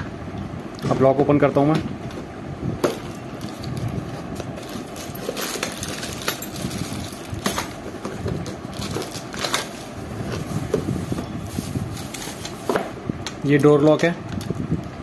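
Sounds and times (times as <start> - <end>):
packaging rustling and crinkling: 2.9 - 12.9.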